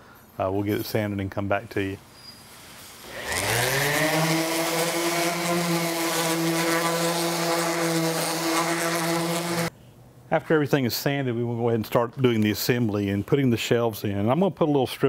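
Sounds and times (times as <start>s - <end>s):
electric sander sanding wood: 3.0s - 9.7s.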